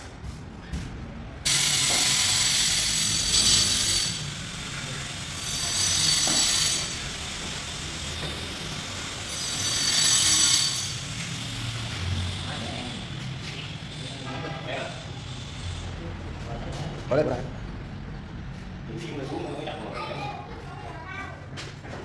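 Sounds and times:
power tool whirring: 0:01.5 - 0:16.0.

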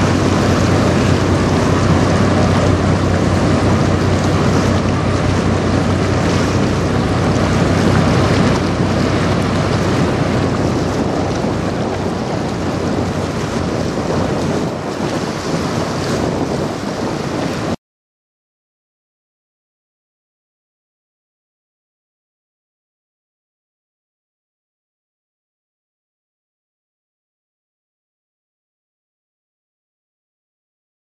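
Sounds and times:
tugboat engines droning: 0:00.0 - 0:17.8
water rushing: 0:00.0 - 0:17.8
wind noise on microphone: 0:00.0 - 0:17.8.

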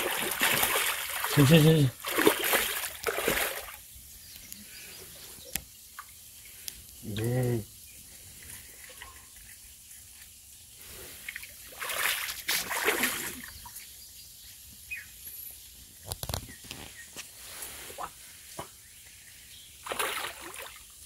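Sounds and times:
fish splashing in water: 0:00.0 - 0:03.8, 0:11.2 - 0:13.5, 0:19.8 - 0:21.0.

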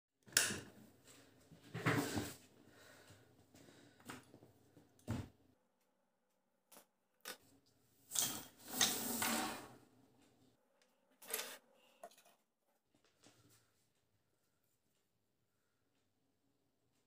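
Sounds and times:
pencils sliding across paper: 0:08.4 - 0:09.7.

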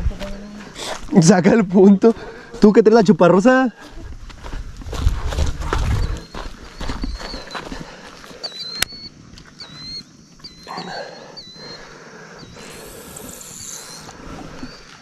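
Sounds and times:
outdoor background noise: 0:00.0 - 0:15.0
bird chirping: 0:05.8 - 0:15.0.

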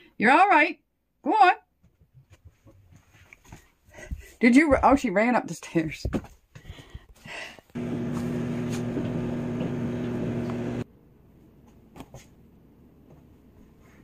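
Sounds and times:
machine hum with low drone: 0:07.8 - 0:10.8.

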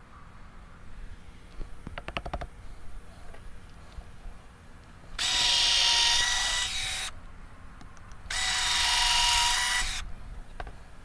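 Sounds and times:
cordless drill into wood: 0:05.2 - 0:07.1, 0:08.3 - 0:10.0.

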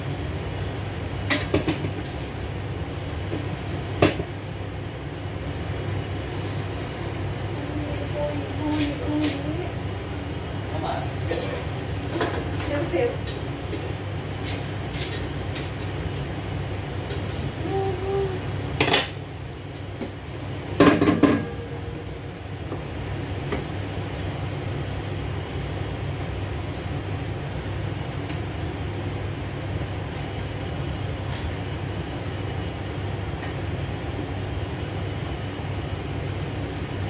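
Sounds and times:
range hood fan humming: 0:00.0 - 0:37.0
pots and dishes clattering: 0:20.8 - 0:21.8.

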